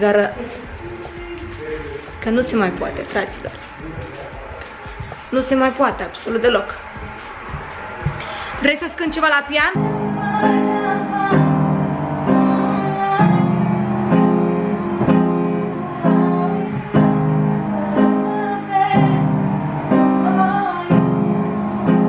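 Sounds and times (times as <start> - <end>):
piano block chords: 0.0 - 22.0
woman singing: 8.6 - 22.0.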